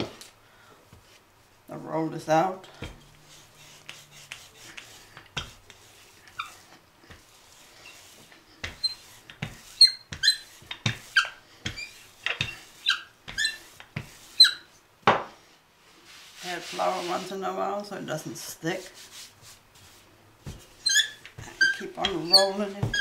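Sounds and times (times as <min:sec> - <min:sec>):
rolling pin squeaking on dough: 0:02.9 - 0:14.8, 0:19.1 - 0:23.0.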